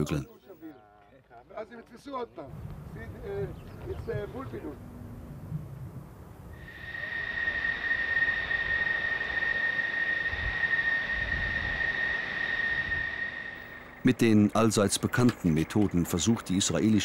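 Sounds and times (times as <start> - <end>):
jet engine whine: 6.4 - 17.0.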